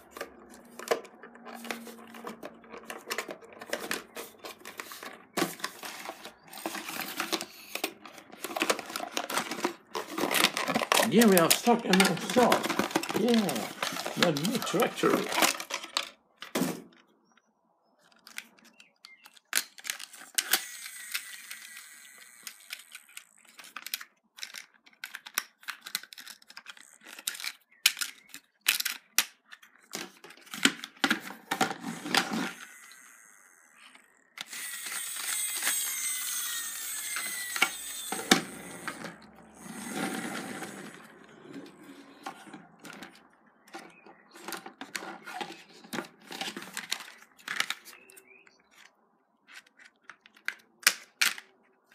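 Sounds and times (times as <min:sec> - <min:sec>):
rustling: 0:00.0 - 0:16.1
plastic toy parts clicking: 0:00.0 - 0:17.1, 0:18.0 - 0:51.9.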